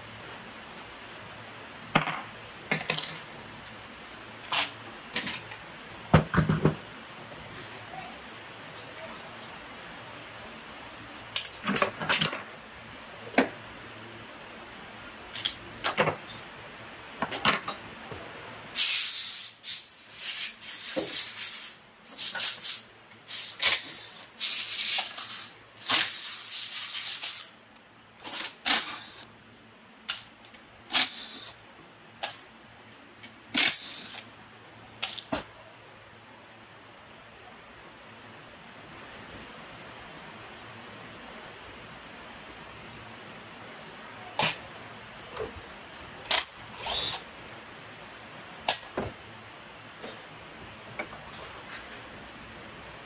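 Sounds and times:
metallic clicks and clinks: 1.7s - 3.3s
short hissing spray bursts: 18.8s - 23.8s, 24.4s - 27.6s.

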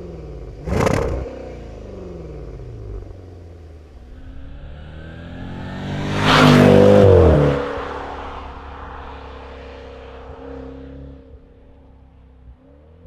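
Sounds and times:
car driving past: 3.7s - 13.0s.

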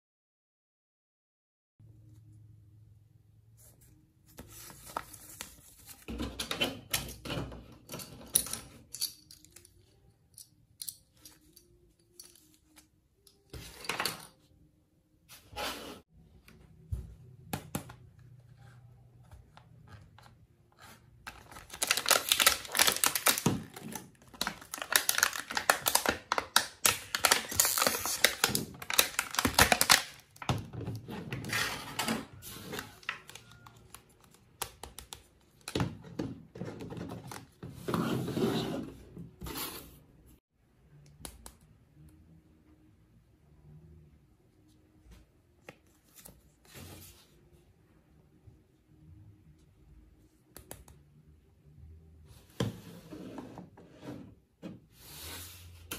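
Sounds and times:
plastic bag crinkling and tearing: 21.3s - 30.2s.

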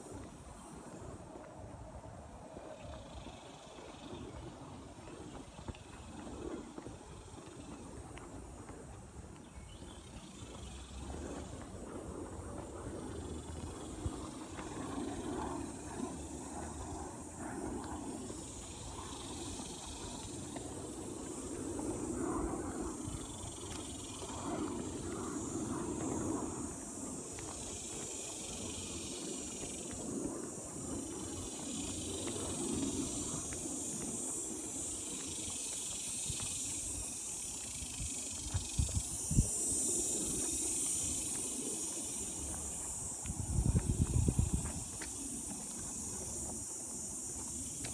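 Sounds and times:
insect drone: 0.0s - 47.9s
footsteps on gravel: 41.2s - 47.9s.

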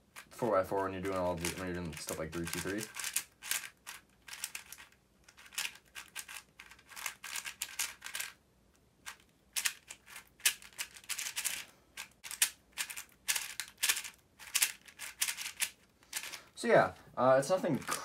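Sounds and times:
puzzle cube clicking: 1.0s - 8.4s, 9.0s - 16.4s, 17.8s - 18.0s.

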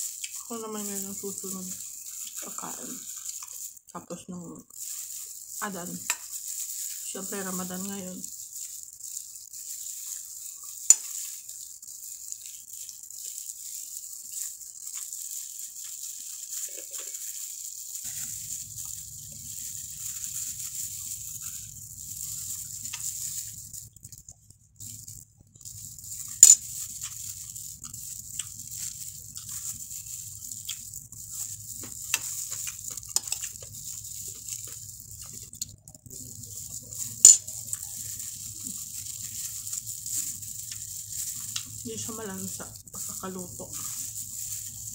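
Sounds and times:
gloved hands picking at fried fish: 25.9s - 41.8s, 42.5s - 44.9s.

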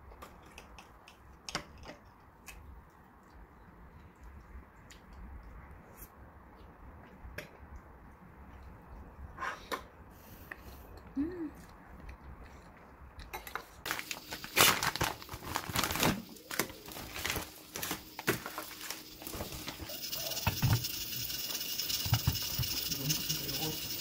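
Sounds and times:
plastic bag crinkling: 13.9s - 20.0s
steady high hiss: 16.0s - 24.0s.

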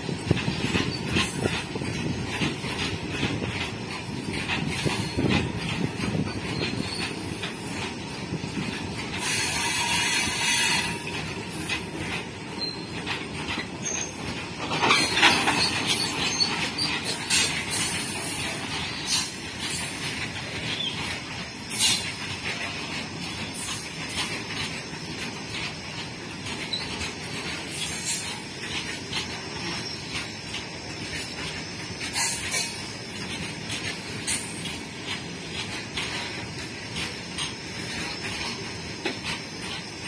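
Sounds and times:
train wheels clattering over rail joints: 0.0s - 40.0s
high-pitched wheel squeal: 9.2s - 11.6s.

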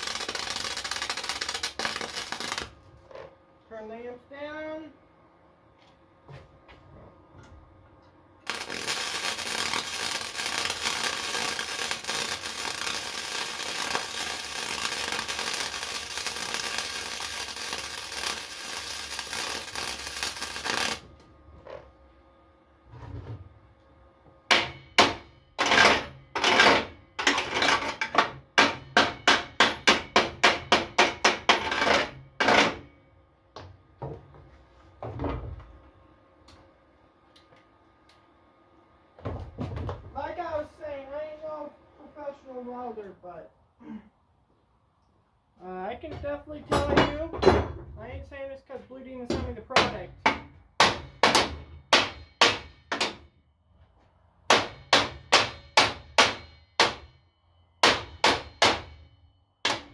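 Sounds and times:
welder crackling hiss: 0.0s - 2.7s, 8.5s - 21.0s.

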